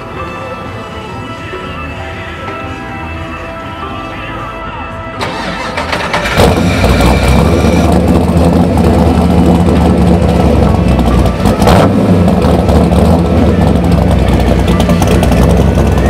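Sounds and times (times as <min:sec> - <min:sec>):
engine idling with deep rumble: 0:03.0 - 0:16.0
car engine cranking: 0:05.2 - 0:16.0.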